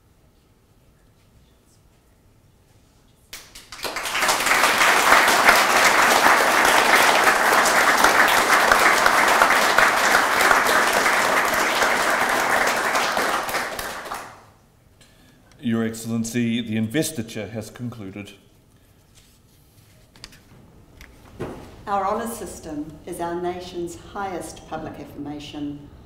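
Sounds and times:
audience applauding: 0:03.4 - 0:14.5.

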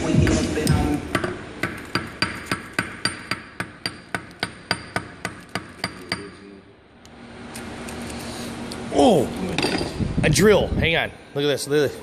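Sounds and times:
hammer striking a block: 0:00.2 - 0:06.3.

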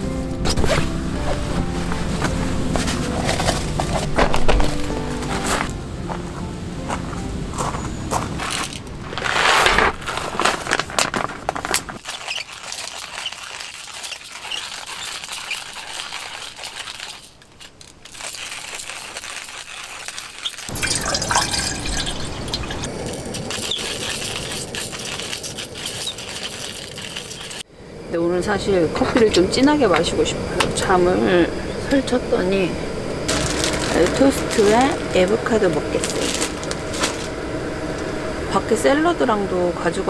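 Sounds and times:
coffee beans rattling into grinder: 0:08.6 - 0:27.6, 0:33.3 - 0:37.4.

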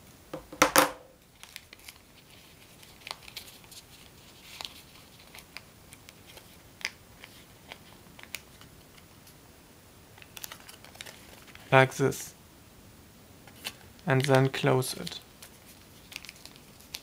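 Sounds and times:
paper being folded and creased: 0:01.3 - 0:09.0, 0:10.2 - 0:11.7, 0:13.5 - 0:17.0.

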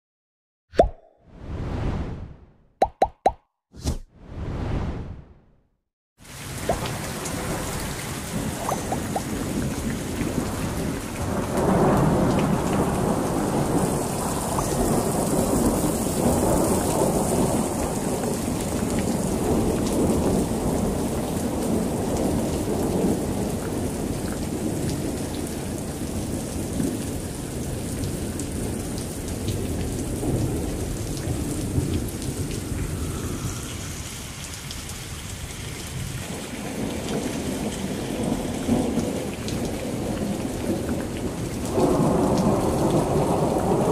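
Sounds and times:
water running off roof: 0:06.2 - 0:11.5
heavy rain pouring: 0:06.2 - 0:43.9.

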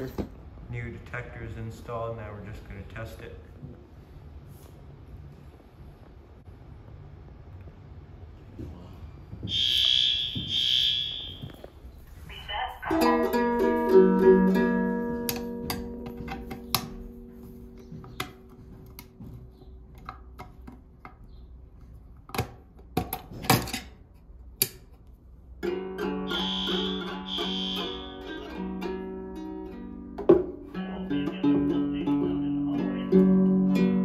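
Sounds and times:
ukulele strings ringing: 0:12.9 - 0:18.6, 0:25.6 - 0:34.0.

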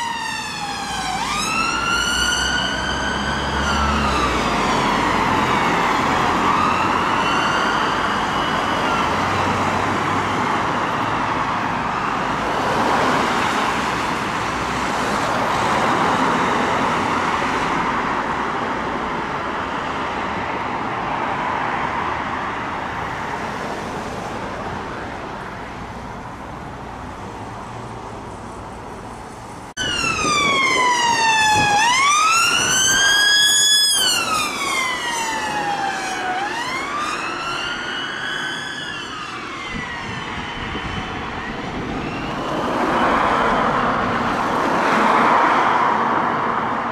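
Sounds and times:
loud close siren wailing: 0:00.0 - 0:18.1, 0:29.8 - 0:46.0
ambulance siren wailing: 0:00.0 - 0:24.0, 0:29.7 - 0:46.9
road traffic noise: 0:00.0 - 0:46.9.

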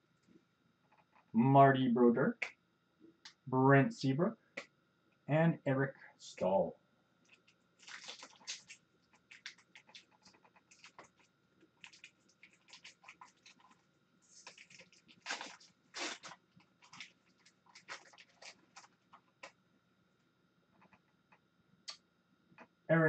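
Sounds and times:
foil wrapper tearing and crinkling: 0:07.3 - 0:19.2.

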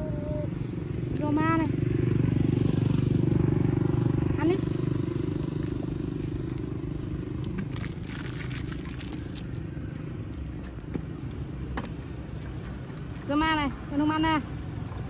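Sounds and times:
small engine hum: 0:00.0 - 0:15.0
plastic wrapper crackling: 0:07.4 - 0:09.6.

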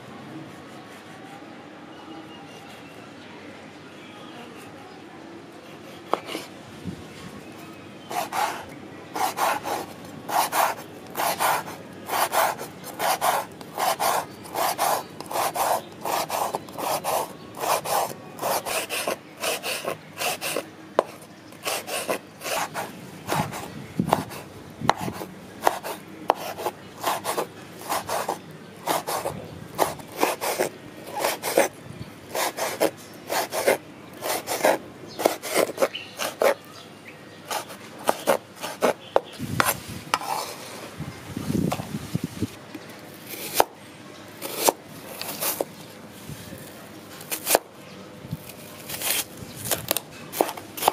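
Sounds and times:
knife slicing on wooden board: 0:09.2 - 0:31.7, 0:32.3 - 0:36.6, 0:37.5 - 0:40.6, 0:44.4 - 0:45.7.

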